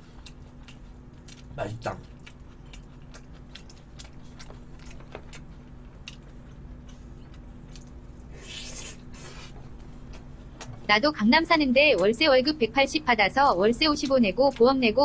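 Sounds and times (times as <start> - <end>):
man chewing food: 0.0 - 10.9
faint steady hum: 0.0 - 15.0.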